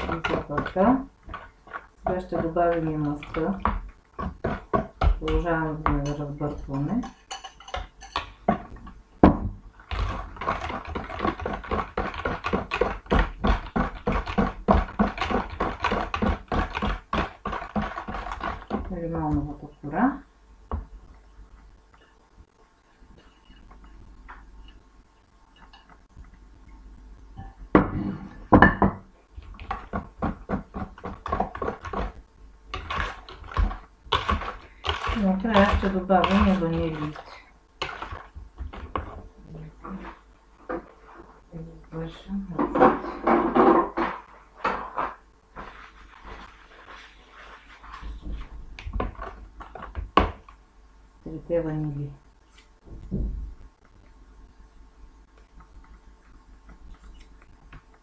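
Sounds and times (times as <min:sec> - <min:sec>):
knocks and clatters on mixing bowl: 0:00.0 - 0:19.4, 0:27.7 - 0:37.2, 0:42.6 - 0:44.8.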